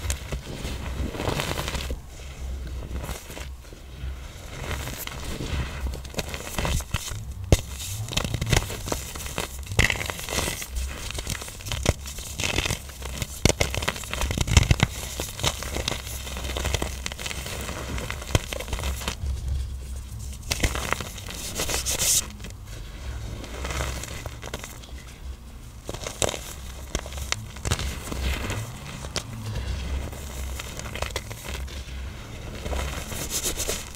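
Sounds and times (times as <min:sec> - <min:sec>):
powdery crumbling: 0:00.0 - 0:33.9
blocks crunching and cracking: 0:04.5 - 0:22.6, 0:25.8 - 0:33.9.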